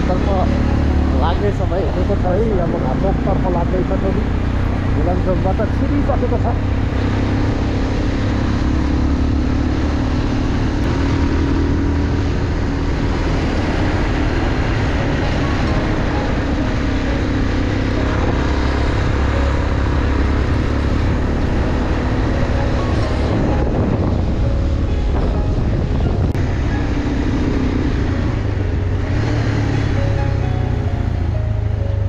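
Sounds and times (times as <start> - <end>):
motorcycle engine cruising: 0.0 - 32.0
road and wind noise: 0.0 - 32.0.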